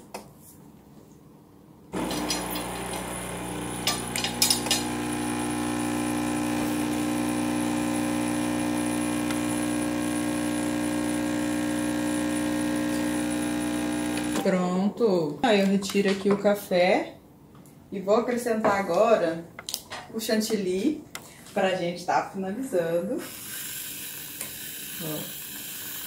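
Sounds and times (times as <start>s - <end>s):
espresso machine pump humming: 2.0s - 14.5s, 23.2s - 26.0s.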